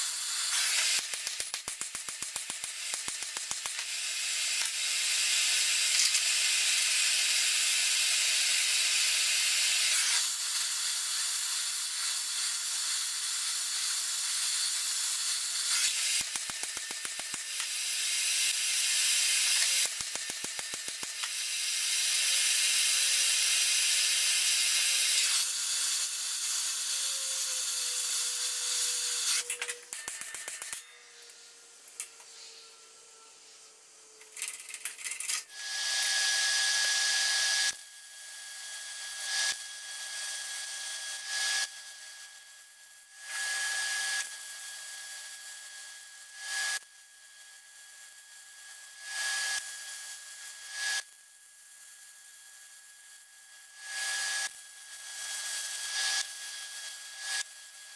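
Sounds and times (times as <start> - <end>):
arc welding crackling hiss: 0.0 - 33.6.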